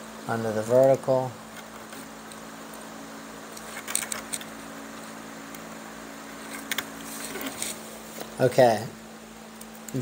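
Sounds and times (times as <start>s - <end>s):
low room hum: 0.0s - 10.0s
chair cane scratchy clicks: 3.5s - 5.6s.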